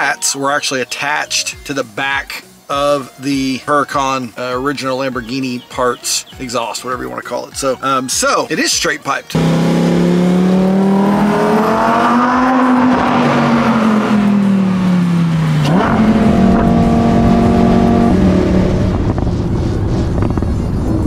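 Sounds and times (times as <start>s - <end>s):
sports car engine revving: 9.3s - 21.0s
rushing noise: 9.4s - 21.0s.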